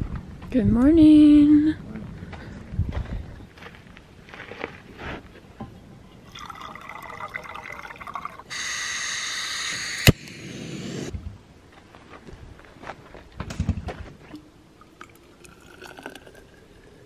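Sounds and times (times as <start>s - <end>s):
water pouring into container: 6.3s - 8.7s, 14.8s - 17.0s.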